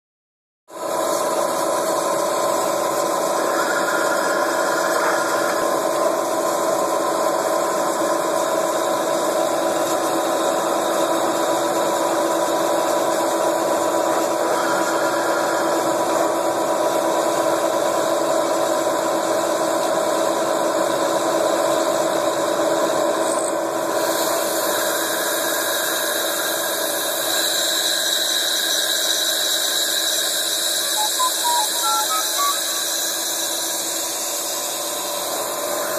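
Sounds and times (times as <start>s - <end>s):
milling spindle whine: 0.7s - 35.9s
faint cutting squeal: 2.2s - 6.1s, 14.0s - 16.5s, 24.5s - 35.9s.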